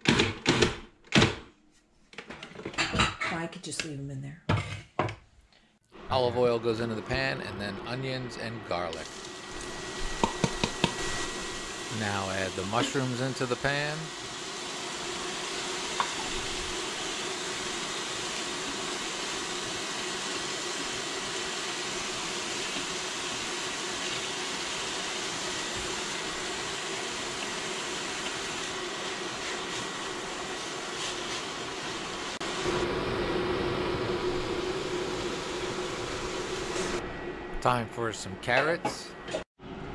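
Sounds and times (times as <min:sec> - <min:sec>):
food sizzling in oil: 0:09.0 - 0:37.0.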